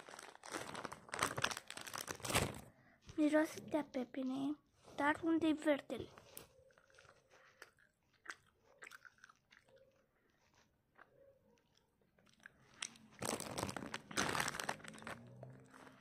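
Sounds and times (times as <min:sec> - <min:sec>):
plastic bag crinkling: 0:00.0 - 0:02.7, 0:12.8 - 0:16.0
person chewing candy: 0:06.3 - 0:16.0.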